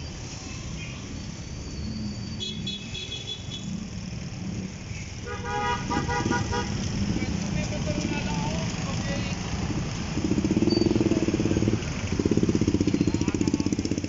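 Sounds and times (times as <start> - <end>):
road traffic rumble: 0.0 - 14.0
vehicle horn: 5.2 - 6.8
high beeps: 10.6 - 11.2.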